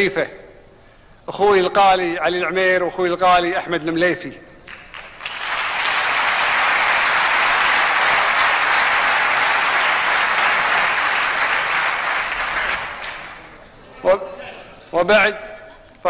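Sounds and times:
crowd applause: 4.7 - 13.7.

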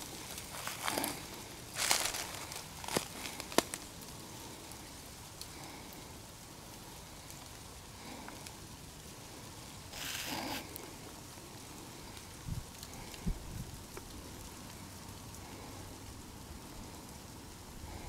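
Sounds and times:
twigs snapping: 0.0 - 4.0
crunching rustle: 0.0 - 6.1, 6.8 - 17.0
rustling in dry leaves: 0.0 - 18.0.

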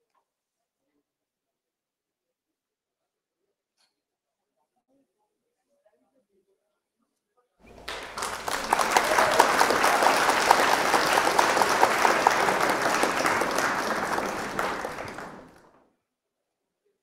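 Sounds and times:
audience applauding: 7.7 - 15.7.

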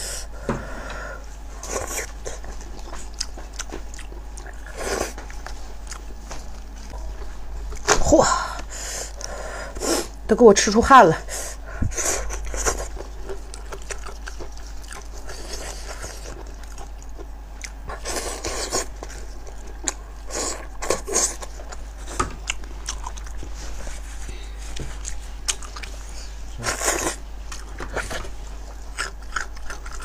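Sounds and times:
wet chewing and biting: 1.7 - 8.0, 12.2 - 23.6, 24.8 - 30.0.

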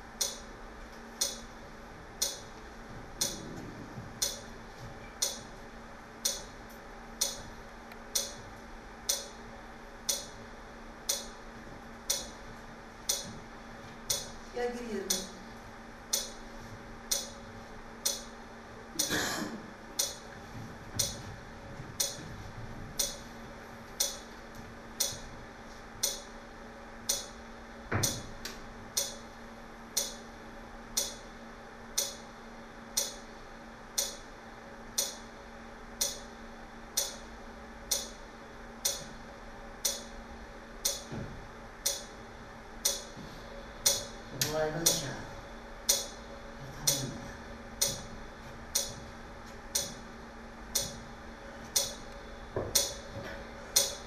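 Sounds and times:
faint steady hum: 0.0 - 54.0
clock ticking: 0.2 - 0.4, 1.2 - 1.4, 2.2 - 2.4, 3.2 - 3.4, 4.2 - 4.5, 5.2 - 5.4, 6.2 - 6.5, 7.2 - 7.4, 8.1 - 8.4, 9.1 - 9.3, 10.1 - 10.3, 11.1 - 11.4, 12.1 - 12.4, 13.1 - 13.3, 14.1 - 14.3, 16.1 - 16.4, 17.1 - 17.4, 18.0 - 18.3, 20.0 - 20.2, 21.0 - 21.2, 22.0 - 22.2, 23.0 - 23.2, 24.0 - 24.2, 26.0 - 26.3, 27.0 - 27.3, 29.0 - 29.2, 30.0 - 30.2, 31.0 - 31.2, 32.0 - 32.2, 33.0 - 33.2, 34.0 - 34.2, 35.0 - 35.2, 36.0 - 36.2, 37.0 - 37.2, 37.9 - 38.2, 38.8 - 39.1, 39.8 - 40.1, 40.8 - 41.1, 41.8 - 42.1, 42.8 - 43.1, 43.8 - 45.1, 45.8 - 46.2, 48.7 - 49.0, 51.8 - 52.0, 52.8 - 53.0, 53.8 - 54.0.

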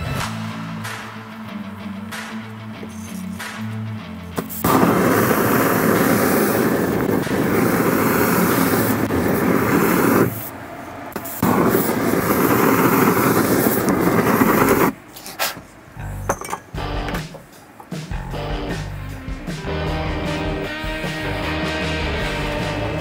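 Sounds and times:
aerosol flame jet hissing: 4.4 - 15.7.

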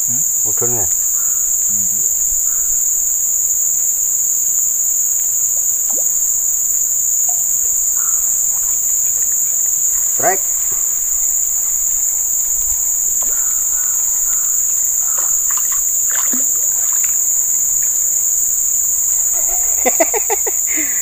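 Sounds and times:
insect chorus buzzing: 0.0 - 21.0
faint ticks: 7.2 - 18.3.

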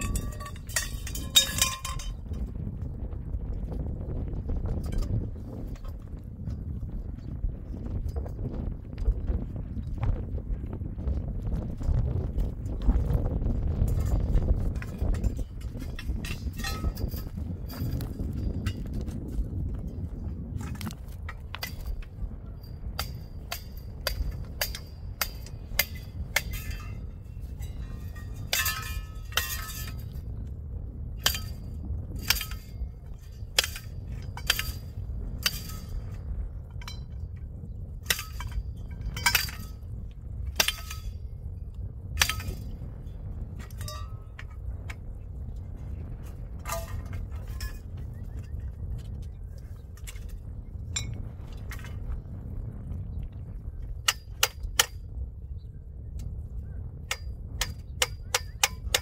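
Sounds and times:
metal pipes clinking together: 0.0 - 2.2, 14.7 - 18.9, 27.6 - 30.1, 31.2 - 31.6, 32.2 - 34.8, 38.1 - 39.8, 43.6 - 44.6, 46.6 - 47.8
low steady rumble: 0.0 - 59.0.

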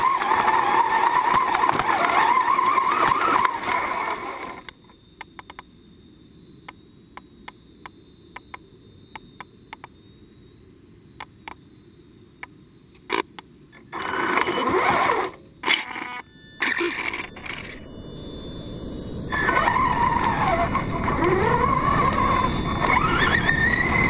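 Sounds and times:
faint irregular clicks: 0.0 - 3.8, 4.4 - 5.7, 6.6 - 10.0, 11.2 - 11.6
toy truck drivetrain and tyres: 0.0 - 4.8, 13.2 - 17.9, 19.3 - 24.0
faint steady high whine: 0.0 - 24.0.

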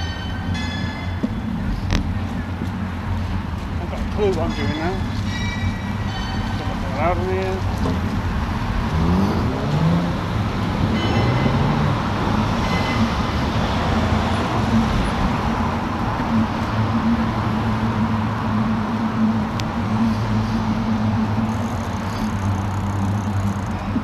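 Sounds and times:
road traffic passing: 0.0 - 24.0
low engine hum: 1.1 - 24.0
vehicle engine pulling away: 7.6 - 24.0.

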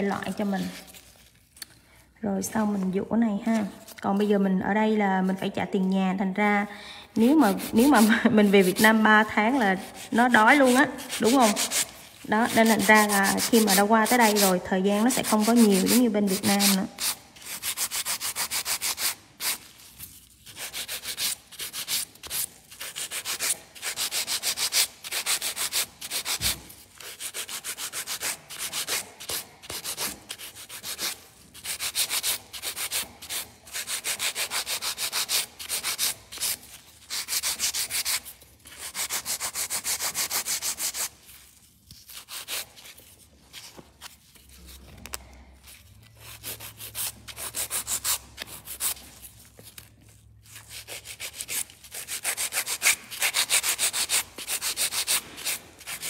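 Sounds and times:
nail file rasping: 7.2 - 19.6, 20.4 - 41.1, 41.9 - 43.0, 46.2 - 49.8, 50.5 - 56.0.

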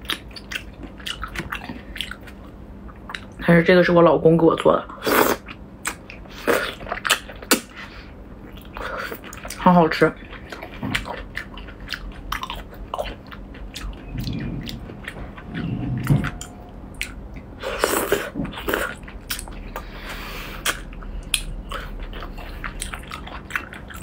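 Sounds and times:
wet chewing and lip-smacking: 0.0 - 3.4, 4.6 - 24.0
low humming: 5.5 - 24.0.

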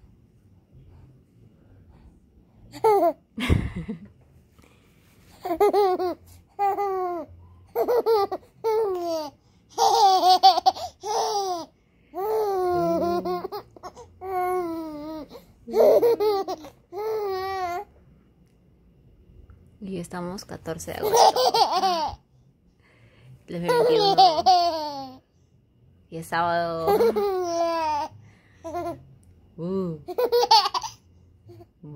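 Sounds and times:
baby laughing and babbling: 5.4 - 17.9, 21.0 - 22.2, 23.7 - 25.2, 26.9 - 29.0, 30.1 - 31.6.

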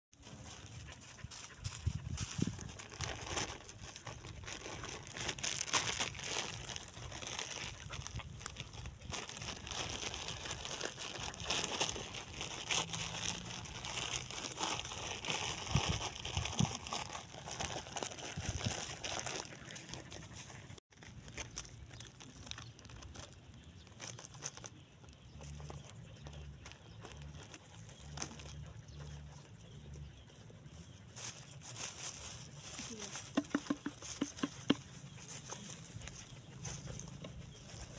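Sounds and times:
plastic bag crinkling: 2.2 - 25.8.

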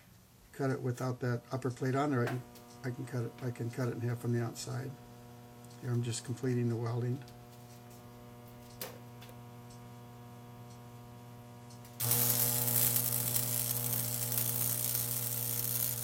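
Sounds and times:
electrical hum: 0.0 - 16.0
welding arc crackling: 2.4 - 5.8, 7.3 - 16.0.

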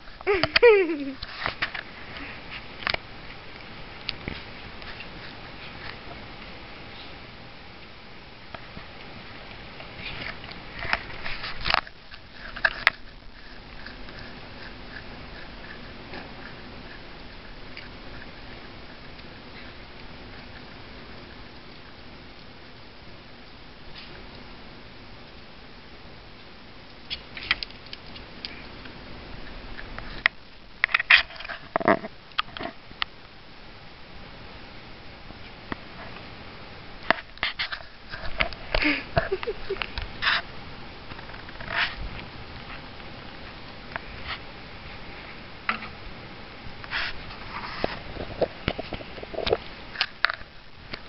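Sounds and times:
rustle: 0.0 - 51.0
animal claws clicking and scratching: 9.8 - 20.8, 27.1 - 28.6
raccoon sniffing: 11.0 - 21.4.

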